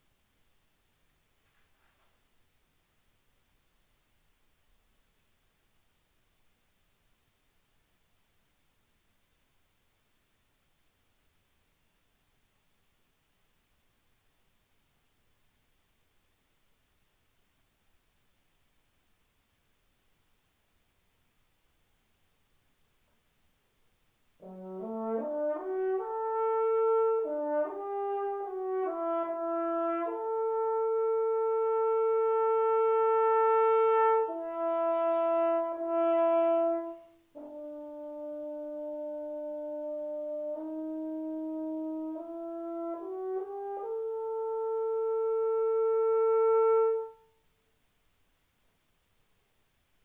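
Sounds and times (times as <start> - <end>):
french horn solo: 24.3 - 47.5.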